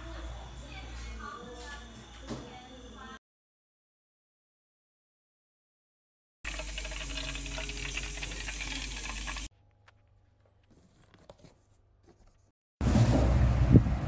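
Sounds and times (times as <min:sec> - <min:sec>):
food sizzling: 0:06.4 - 0:09.5.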